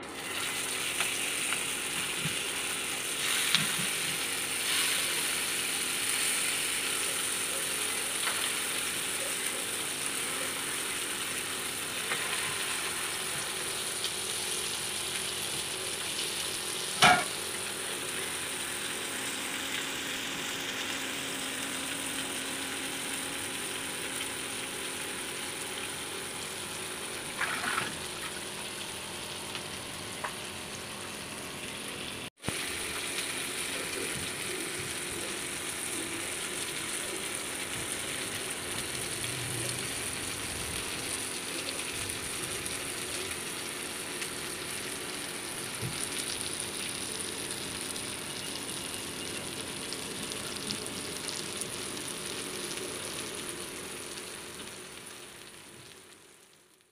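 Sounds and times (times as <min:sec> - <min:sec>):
fish sizzling in oil: 0:00.1 - 0:56.9.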